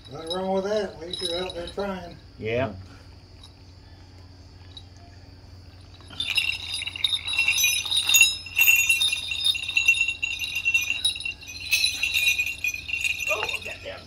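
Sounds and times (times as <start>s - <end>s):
sleigh bells jingling: 0.0s - 2.3s, 5.8s - 14.0s.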